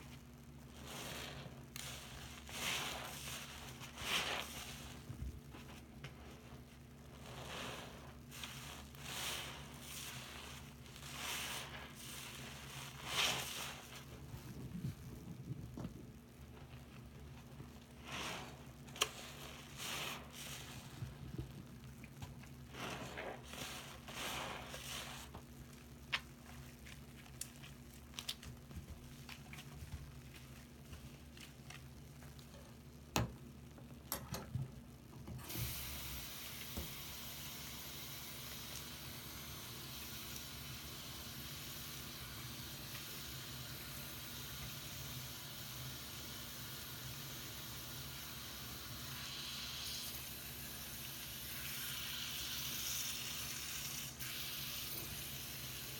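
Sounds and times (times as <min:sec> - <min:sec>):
wet sponges squelching: 0:00.0 - 0:32.7.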